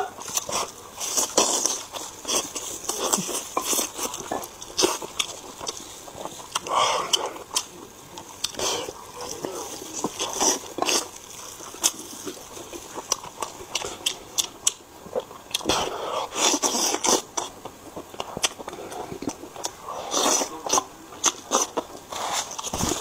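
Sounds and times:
chewing and biting meat: 0:00.0 - 0:23.0
mouth clicks and smacks: 0:16.5 - 0:23.0.

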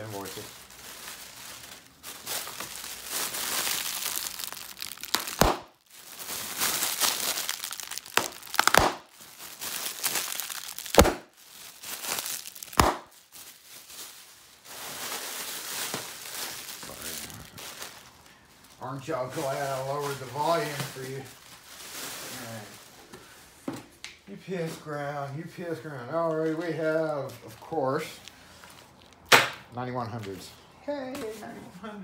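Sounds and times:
plastic air pillows crinkling: 0:00.0 - 0:23.5, 0:24.6 - 0:29.4
sharp plastic cracks: 0:04.3 - 0:05.8, 0:07.0 - 0:09.2, 0:10.2 - 0:11.3, 0:12.4 - 0:13.2, 0:29.2 - 0:29.6.

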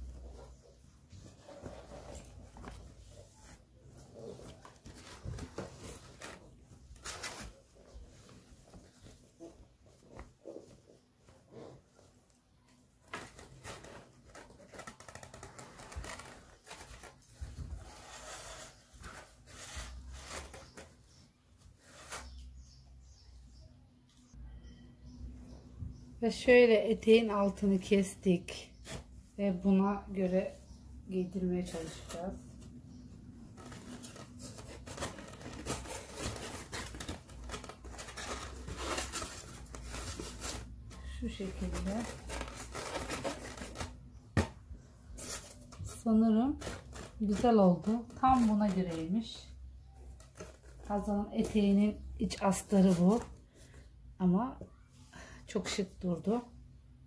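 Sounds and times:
fabric rustling and crinkling: 0:00.0 - 0:22.5, 0:31.2 - 0:53.7.

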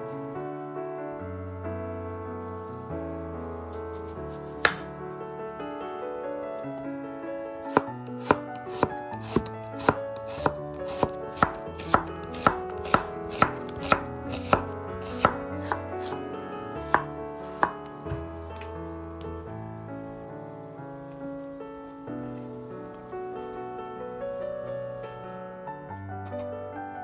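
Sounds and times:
background music: 0:00.0 - 0:27.0
knife knocking on cutting board: 0:04.6 - 0:04.8.

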